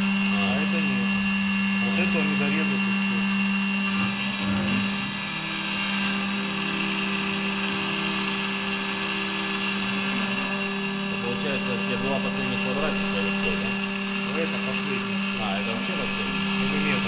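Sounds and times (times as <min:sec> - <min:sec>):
milling machine humming and whining: 0:00.0 - 0:17.0.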